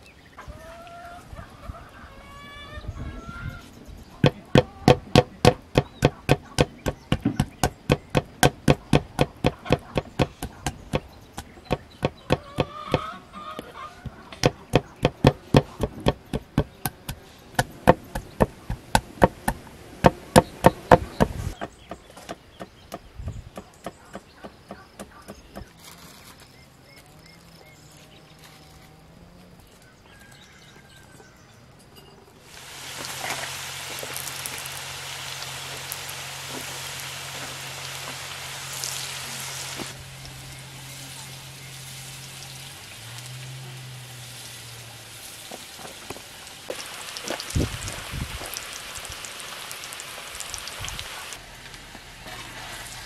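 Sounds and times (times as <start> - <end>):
knife chopping on wooden board: 4.2 - 13.1, 14.0 - 25.7.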